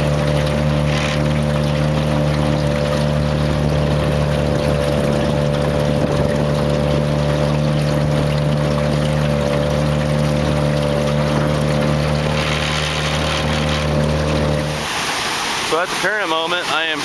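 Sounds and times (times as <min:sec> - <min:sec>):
low hum: 0:00.0 - 0:15.7
river rushing over a dam: 0:14.7 - 0:17.0.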